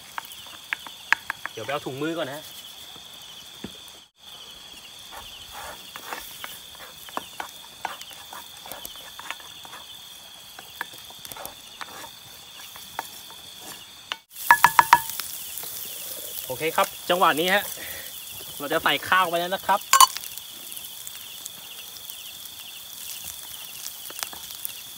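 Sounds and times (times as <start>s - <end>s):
high insect trill: 0.0s - 24.9s
wooden spoon scraping skillet: 5.1s - 10.0s, 10.6s - 16.8s
egg sizzling: 5.1s - 24.9s.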